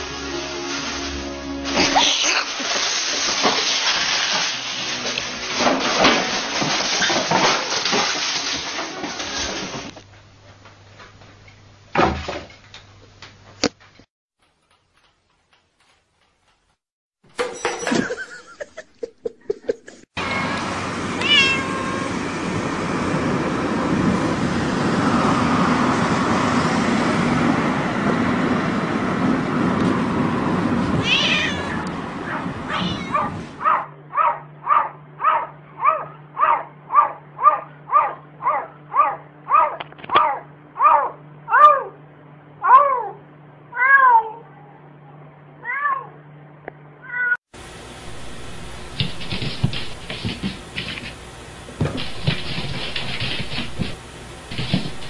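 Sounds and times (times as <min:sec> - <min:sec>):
plastic bottles clattering: 0:01.8 - 0:09.9
cat meowing: 0:21.2 - 0:22.2, 0:31.0 - 0:33.4, 0:42.6 - 0:44.5.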